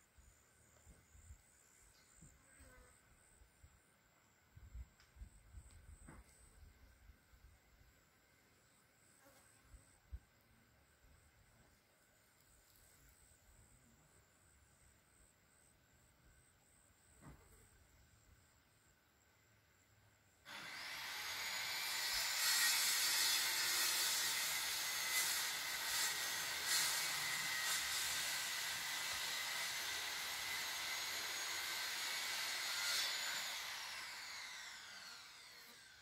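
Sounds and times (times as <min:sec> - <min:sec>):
motor machine whining and hissing: 0:20.5 - 0:36.0.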